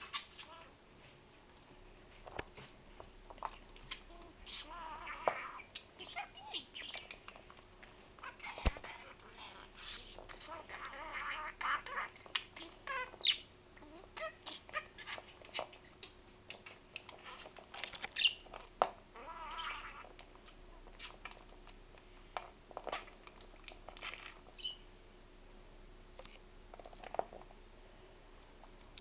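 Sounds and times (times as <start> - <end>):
budgerigar chirping and chattering: 3.9 - 7.2, 9.8 - 13.5, 14.2 - 18.4, 19.2 - 20.0, 24.6 - 24.8.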